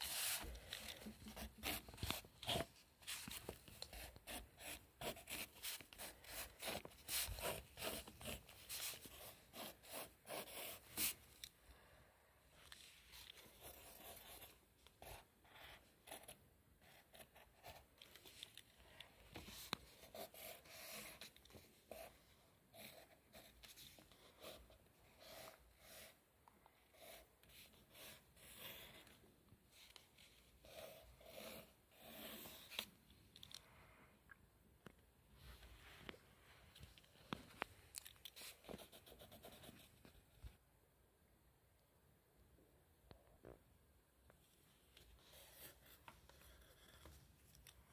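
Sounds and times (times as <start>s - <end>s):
pencil scratching on paper: 0.0s - 11.2s, 13.2s - 18.3s, 19.3s - 26.2s, 26.8s - 29.2s, 29.9s - 32.9s, 38.3s - 40.1s, 45.0s - 47.2s.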